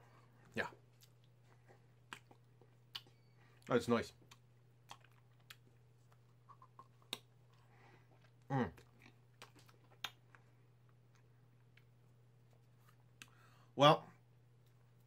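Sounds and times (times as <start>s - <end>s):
faint low hum: 0.0s - 15.0s
lip smacks and wet clicks: 0.9s - 7.6s, 8.2s - 13.4s.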